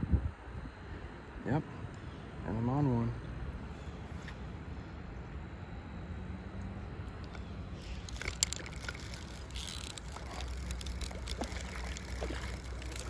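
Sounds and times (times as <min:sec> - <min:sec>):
low steady rumble: 0:00.0 - 0:13.0
fishing reel clicks: 0:07.2 - 0:13.0
fish splashing at water surface: 0:07.8 - 0:13.0.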